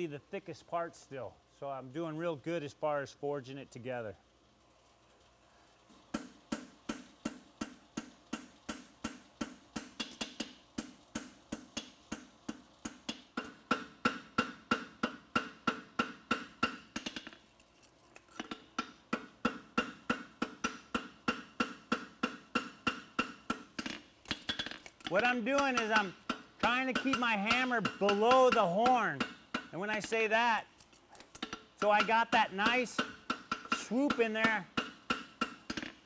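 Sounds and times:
hammer striking metal on anvil: 18.8 - 23.7, 24.4 - 30.2, 31.4 - 35.9.

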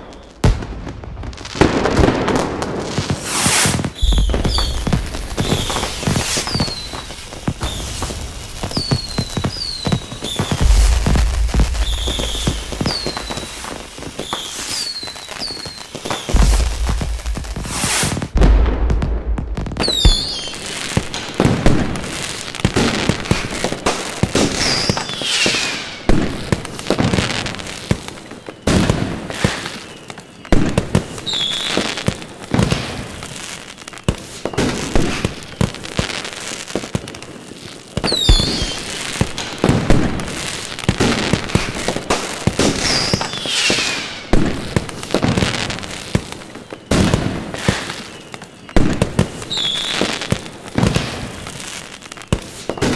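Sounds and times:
falling firework whistles: 0.0 - 52.9
firework crackling: 0.0 - 52.9
firework shells bursting: 1.6 - 26.6, 38.0 - 45.8.

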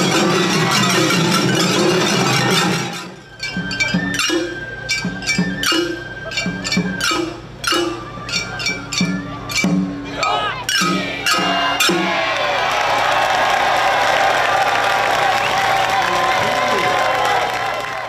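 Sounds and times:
brass gongs clinking: 0.0 - 12.4.

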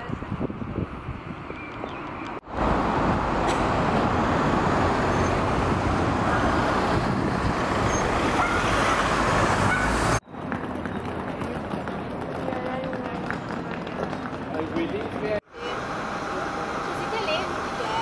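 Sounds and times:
cars and vans passing: 0.0 - 18.0.

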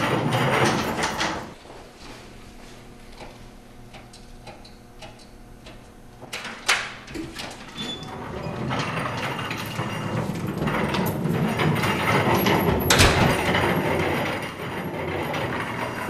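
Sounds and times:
trash bin rolling and rattling: 0.0 - 1.6, 7.1 - 16.0.

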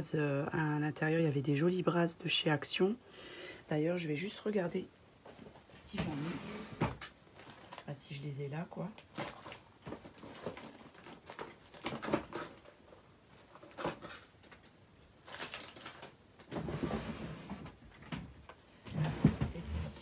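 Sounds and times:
packets rustling: 7.3 - 7.9, 9.0 - 16.7
small items clicking and rattling: 7.4 - 7.9, 9.0 - 16.5.

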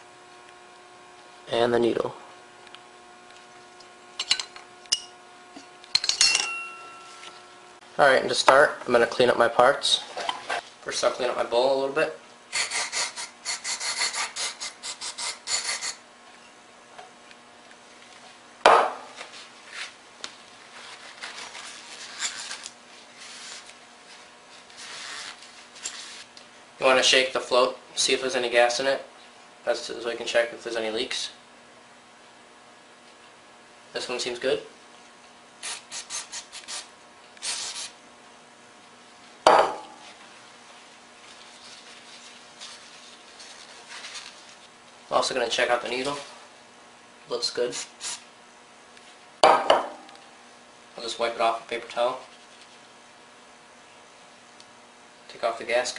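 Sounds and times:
sharp knock: 18.7 - 19.0
paper towel rubbing on metal: 24.8 - 26.3, 35.6 - 38.0, 41.4 - 44.7.

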